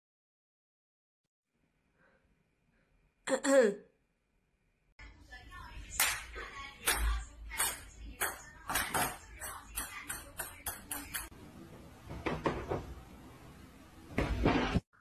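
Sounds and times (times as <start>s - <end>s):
knocking on a door: 12.1s - 12.9s.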